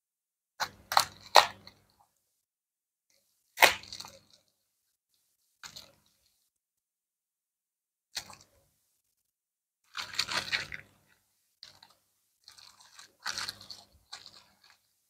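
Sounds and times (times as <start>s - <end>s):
bubble wrap crinkling: 9.9s - 15.0s.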